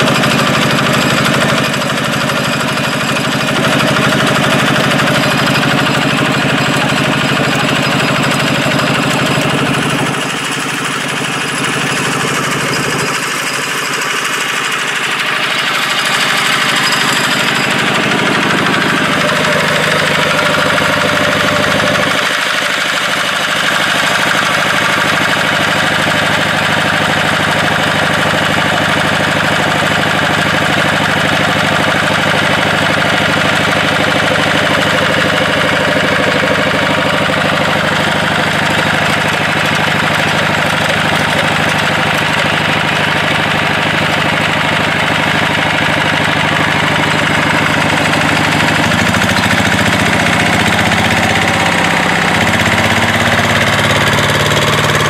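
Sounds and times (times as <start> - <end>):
water pump engine running: 0.0 - 55.0.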